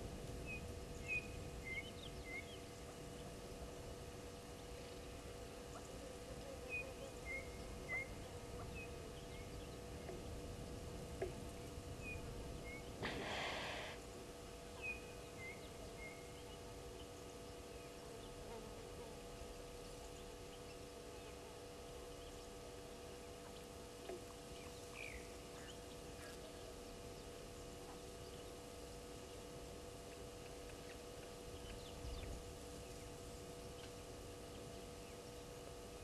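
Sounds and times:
steady hum: 0.0 - 36.0
hissing burst: 13.0 - 14.0.

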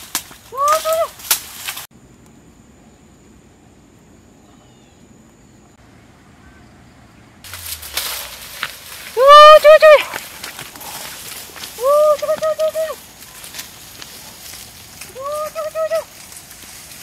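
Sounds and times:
person pushing through tall grass: 0.0 - 1.9, 7.5 - 17.0
faint bird chirps: 4.2 - 7.3
dogs rustling through undergrowth: 7.5 - 17.0.

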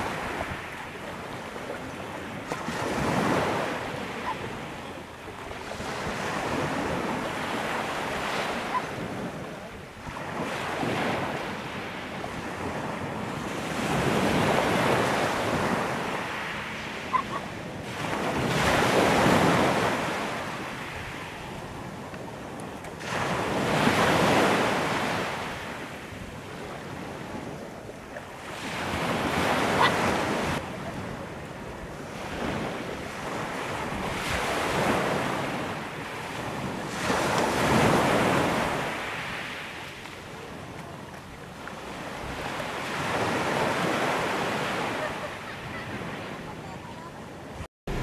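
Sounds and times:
waves washing onto pebble beach: 32.0 - 45.2
wind buffeting microphone: 45.7 - 48.0.

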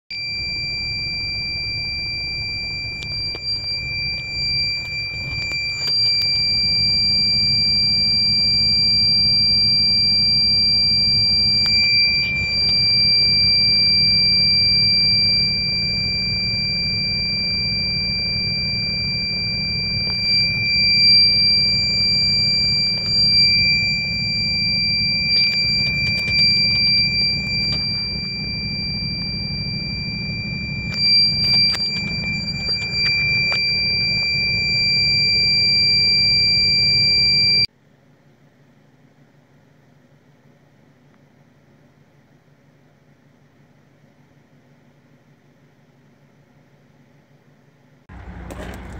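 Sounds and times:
high-pitched warning buzzer: 0.3 - 37.7.

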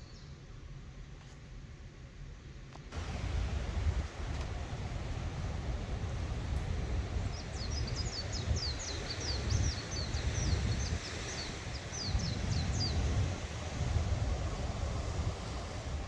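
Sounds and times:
steady low rumble: 0.2 - 16.0
songbird chirping: 7.3 - 13.0.

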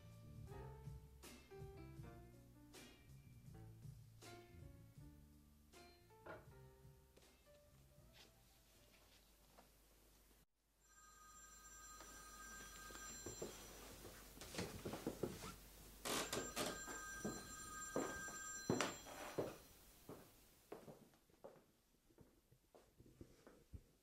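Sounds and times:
telephone ringing: 10.8 - 15.3, 16.0 - 19.8
footsteps on wooden floor: 12.0 - 21.6.

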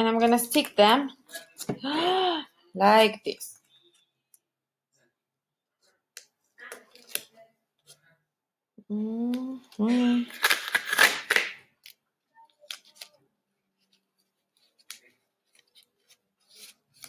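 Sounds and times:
tape and straws crinkling: 9.7 - 13.2.

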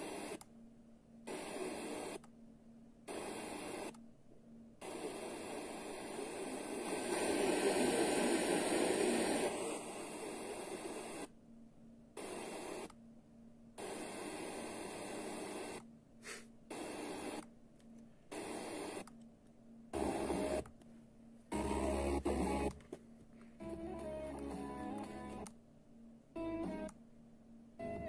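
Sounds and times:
radio static hiss: 0.0 - 0.4, 1.3 - 2.2, 3.1 - 4.0, 4.8 - 11.3, 12.2 - 12.9, 13.8 - 17.4, 18.3 - 19.1, 19.9 - 20.6, 21.5 - 22.8.

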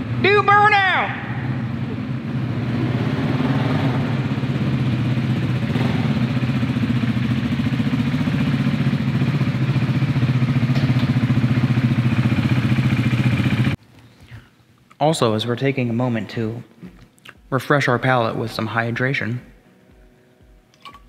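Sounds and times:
motorcycle engine idling: 3.9 - 13.8.

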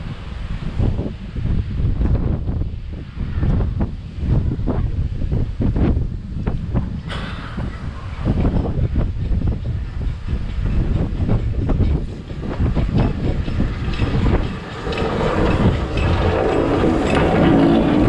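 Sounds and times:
steam locomotive running slowly: 0.0 - 18.0
wind buffeting microphone: 0.0 - 18.0
wheels clattering on rails: 6.4 - 18.0.

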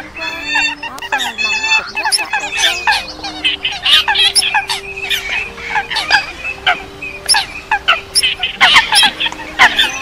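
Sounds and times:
held low bird notes: 0.0 - 10.0
waterfowl calls: 0.0 - 10.0.

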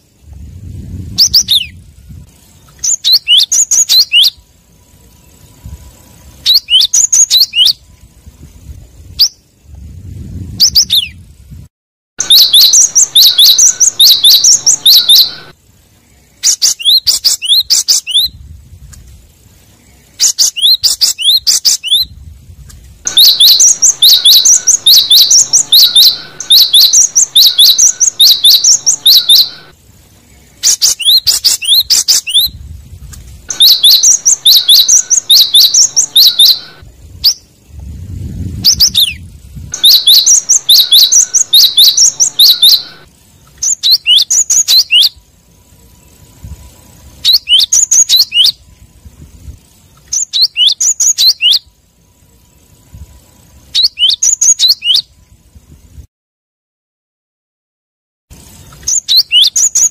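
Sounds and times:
bird singing rapid high notes: 1.1 - 8.1, 12.2 - 18.4, 19.7 - 22.2, 23.0 - 32.6, 33.5 - 48.8, 50.1 - 51.8, 52.4 - 55.2, 58.4 - 59.9.

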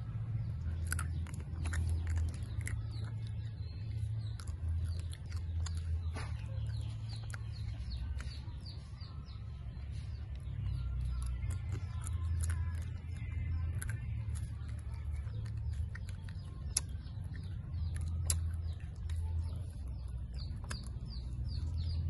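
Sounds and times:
chewing dried fruit: 0.0 - 22.0
small birds chirping: 0.0 - 22.0
steady low hum: 0.0 - 22.0
mouth clicks: 10.2 - 22.0.

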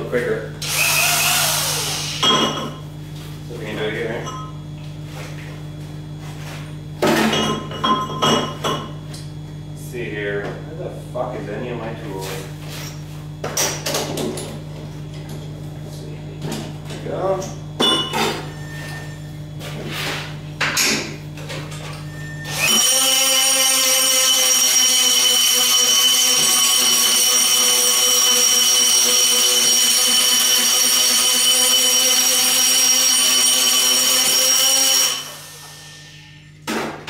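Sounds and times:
die grinder whining: 0.6 - 2.3, 22.1 - 36.5.

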